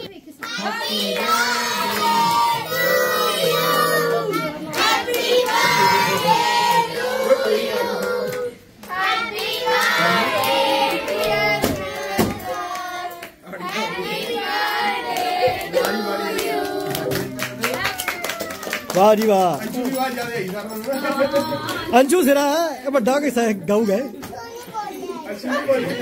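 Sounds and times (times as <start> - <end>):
children singing together: 0.6 - 17.1
hand claps: 14.7 - 21.9.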